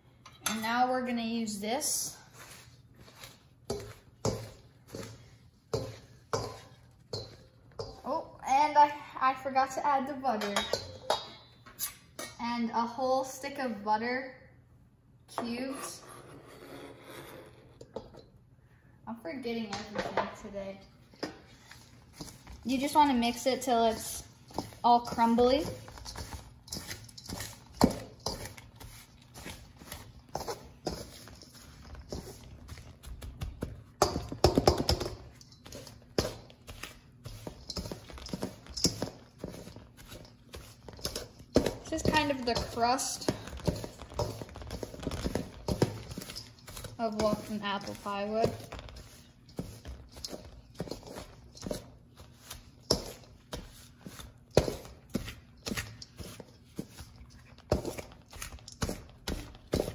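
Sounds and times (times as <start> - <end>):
metal blades scraping a bowl: 22.2 - 32.5, 35.4 - 51.9.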